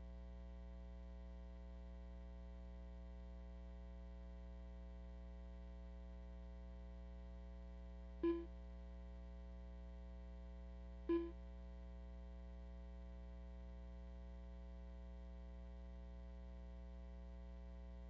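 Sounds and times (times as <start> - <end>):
short electronic beeps: 8.2 - 8.5, 11.1 - 11.4.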